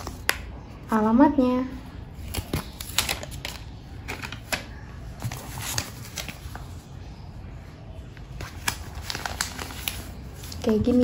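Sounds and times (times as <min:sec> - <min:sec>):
paper rustling: 0:02.2 - 0:06.9, 0:08.2 - 0:11.0.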